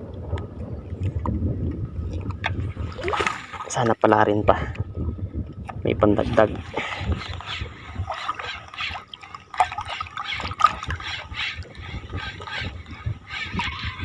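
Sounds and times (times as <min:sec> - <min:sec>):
small waves lapping: 0:02.1 - 0:04.0, 0:06.2 - 0:14.0.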